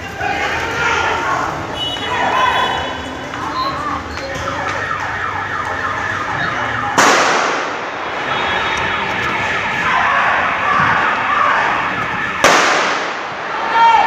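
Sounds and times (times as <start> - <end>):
electronic siren sweeping: 3.7 - 7.0, 8.0 - 12.4
loud gunshot echoing: 7.0 - 8.0, 12.4 - 13.5.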